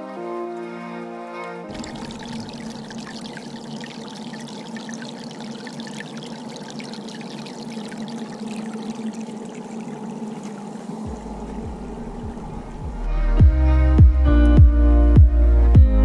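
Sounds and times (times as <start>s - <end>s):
stream trickling over rocks: 1.7s - 12.2s
low rumble: 11.1s - 15.6s.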